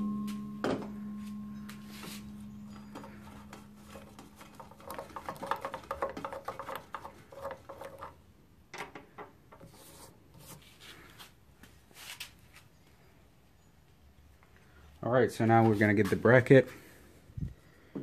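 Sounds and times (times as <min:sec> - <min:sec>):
low hum: 0:00.0 - 0:05.0.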